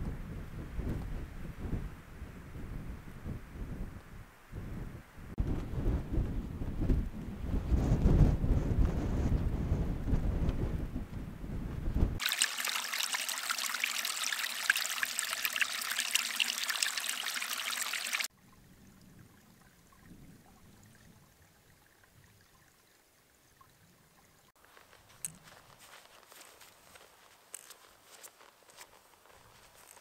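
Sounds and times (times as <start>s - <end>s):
wind buffeting microphone: 0.0s - 12.2s
stream trickling and splashing: 12.2s - 30.0s.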